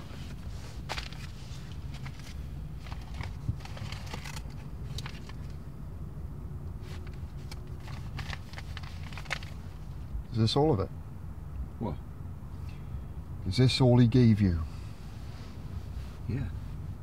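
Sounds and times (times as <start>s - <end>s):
paper rustling and crinkling: 0.0s - 5.5s, 6.8s - 9.8s
low steady hum: 0.0s - 17.0s.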